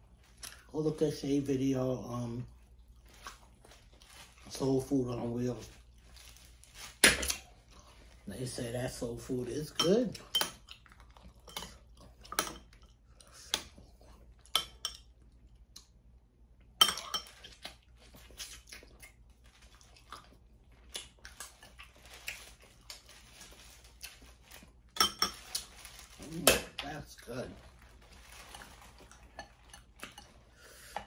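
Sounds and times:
food handling sounds: 0:00.1 - 0:15.2, 0:17.0 - 0:31.0
chewing: 0:02.4 - 0:04.5, 0:10.2 - 0:14.5, 0:17.3 - 0:25.9, 0:27.6 - 0:31.0.

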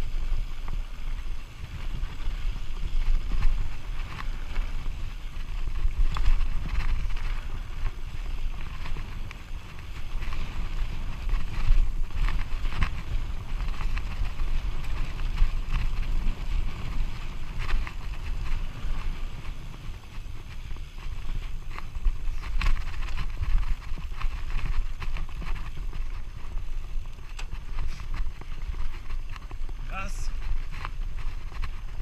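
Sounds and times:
bike rattling over bumps: 0:00.0 - 0:32.0
tyres crunching on loose stones: 0:00.0 - 0:32.0
wind buffeting microphone: 0:00.0 - 0:32.0.

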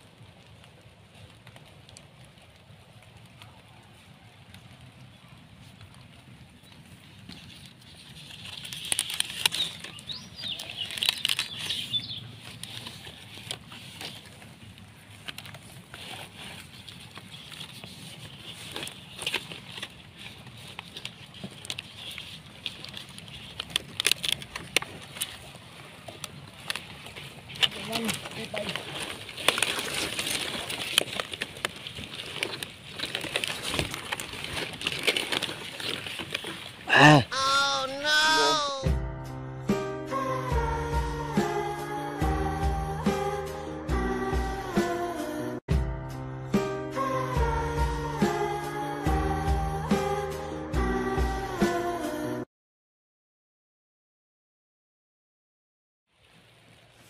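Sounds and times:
stiff leaves rustling and crackling: 0:00.0 - 0:38.9.

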